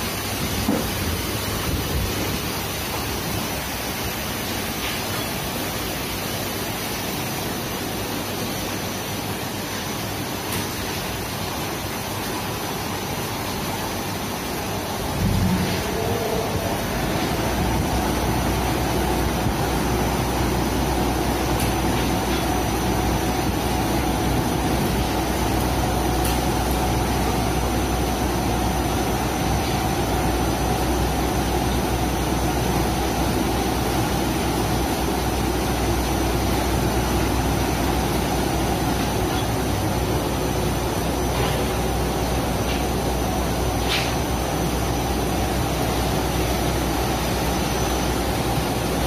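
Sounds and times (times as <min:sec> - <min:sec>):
low machine hum: 0:12.8 - 0:49.0.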